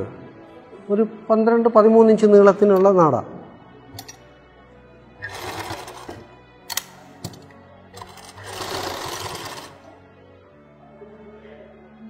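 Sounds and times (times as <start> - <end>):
sewing machine stitching: 5.2 - 6.3, 8.0 - 9.8.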